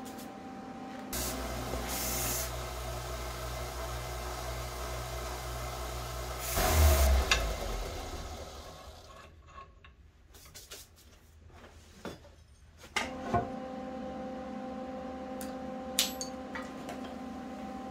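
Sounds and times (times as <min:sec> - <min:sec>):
steady machine hum: 0:00.0 - 0:09.0.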